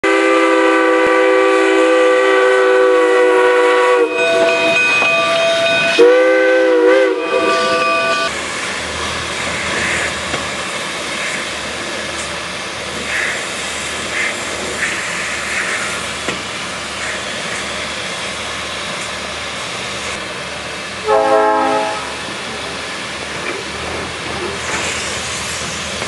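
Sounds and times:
steam locomotive whistle: 0.0s - 8.3s, 21.0s - 22.2s
steam hissing: 0.1s - 26.0s.

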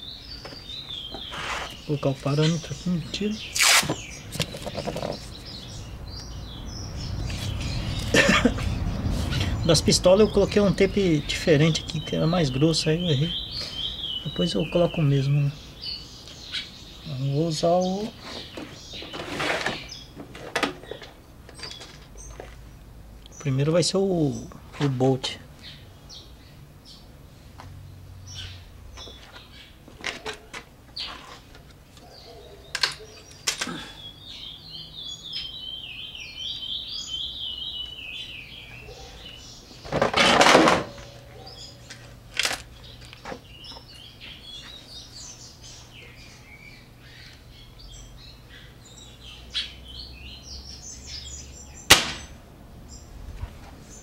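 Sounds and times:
birds chirping: 0.0s - 54.0s
air rifle shot: 51.9s - 52.4s.

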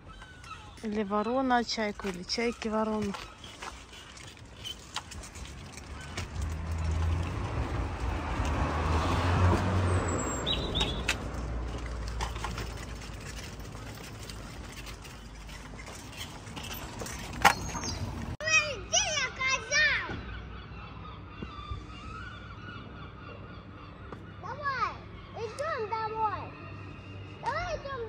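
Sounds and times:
vehicle driving past: 5.8s - 12.9s.

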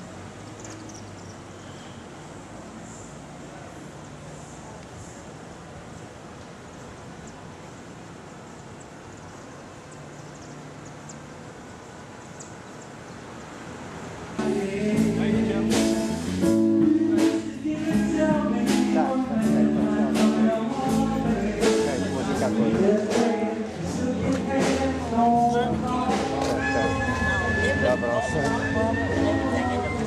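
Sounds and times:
faint street background: 0.0s - 30.0s
drum or cymbal hits: 14.4s - 25.1s
band music with singing: 14.4s - 30.0s.

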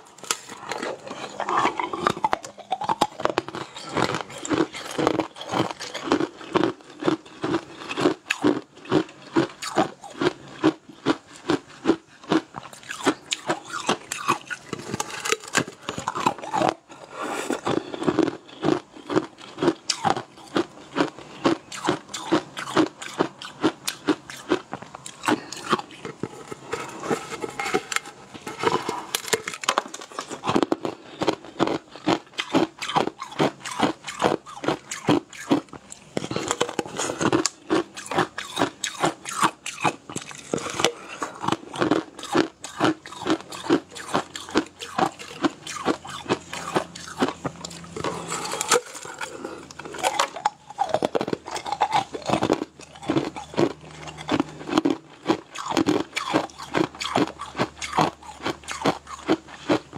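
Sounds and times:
chewing jelly sweet: 0.0s - 59.9s
crunchy wet mouth clicks: 29.2s - 59.8s.

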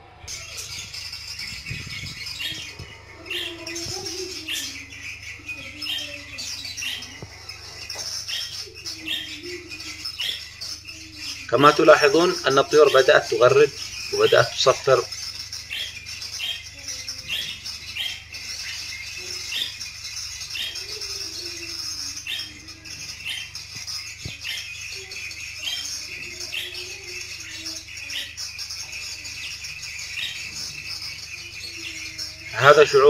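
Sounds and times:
budgerigars chirping and warbling: 0.0s - 33.0s.

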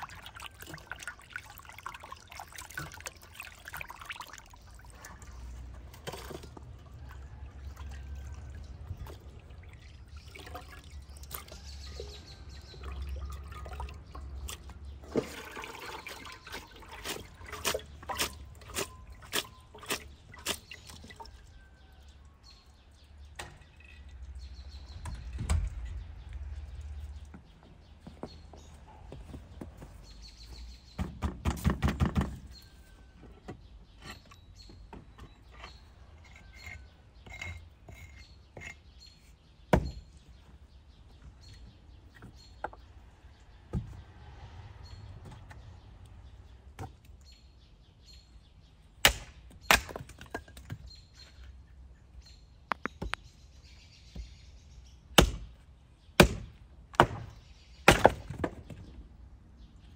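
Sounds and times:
birds chirping faintly: 0.0s - 59.9s
axe chopping wood: 39.7s - 40.1s, 49.0s - 50.8s, 55.2s - 55.6s, 56.2s - 58.8s.

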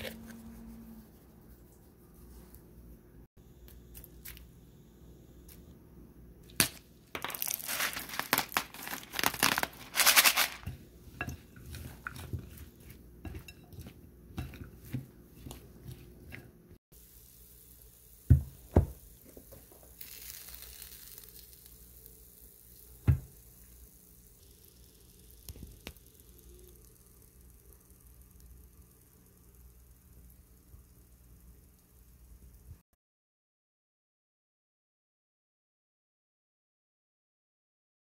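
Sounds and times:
spatula rustling and crunching vegetables: 6.6s - 17.4s.

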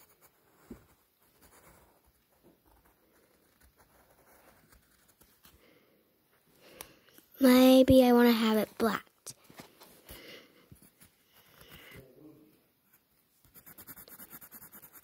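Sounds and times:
pencil scratching on paper: 0.0s - 5.5s, 12.9s - 15.0s.

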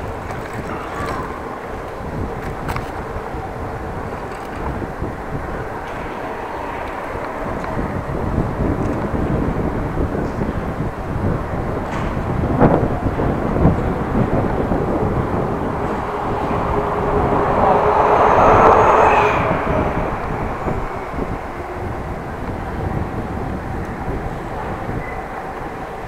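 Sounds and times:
bicycle rolling: 0.0s - 17.3s
wind noise: 0.0s - 26.0s
motor vehicle passing: 13.3s - 23.6s.

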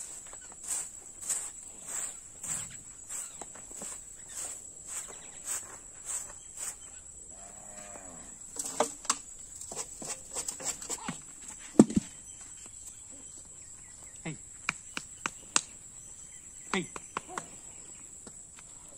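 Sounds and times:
broom swishing over dirt: 0.0s - 7.0s, 9.6s - 11.7s
high insect whine: 0.0s - 18.9s
cow mooing: 7.3s - 8.4s.

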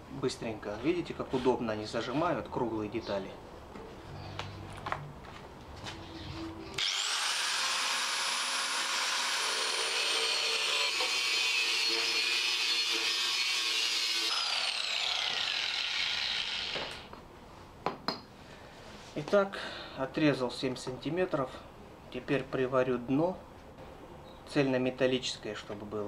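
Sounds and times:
angle grinder cutting steel tube: 6.8s - 17.1s.

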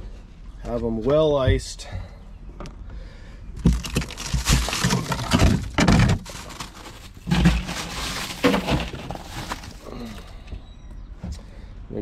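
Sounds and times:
crushed ice crunching: 3.6s - 10.3s.

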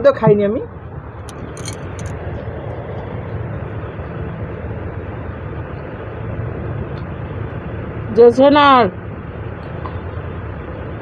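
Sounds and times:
low rumbling background noise: 0.0s - 11.0s.

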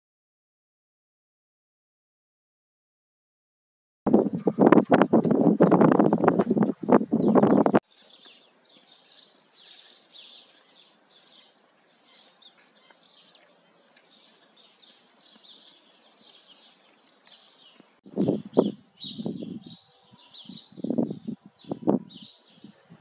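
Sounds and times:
small birds chirping: 4.1s - 23.0s.

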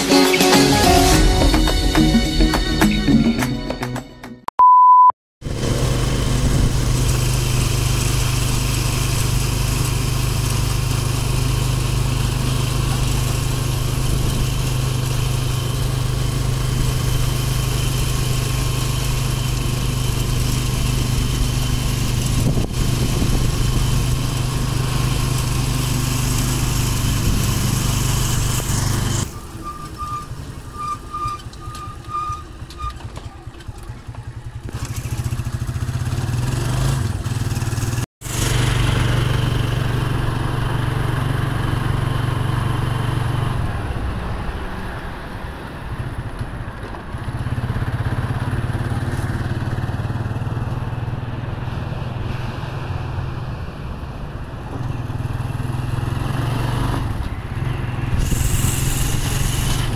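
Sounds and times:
faint short beeps: 4.6s - 5.1s
loud electronic beep: 4.6s - 5.1s, 29.1s - 33.0s
motorcycle engine running: 5.4s - 30.7s, 31.4s - 43.7s, 47.1s - 51.6s
road and wind noise: 5.4s - 59.9s.

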